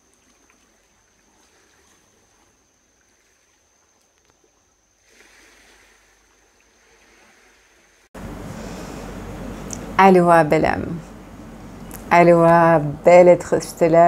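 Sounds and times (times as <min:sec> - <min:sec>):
rushing water: 0:00.0 - 0:08.1.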